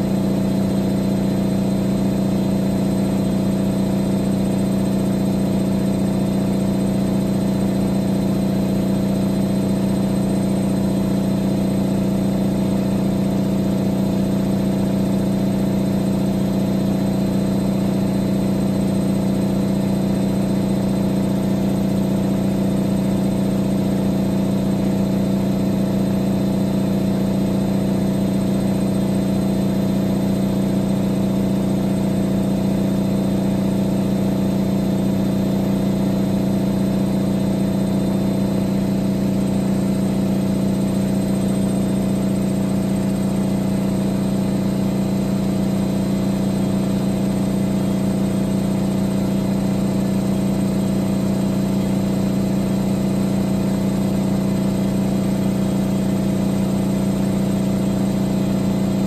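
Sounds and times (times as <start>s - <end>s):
washing machine humming: 0.0s - 59.0s.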